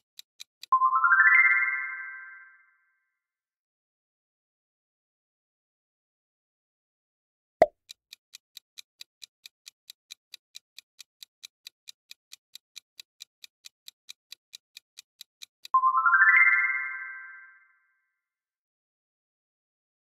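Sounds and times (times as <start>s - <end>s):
quick ticking timer: 0.0s - 0.8s, 7.6s - 15.8s.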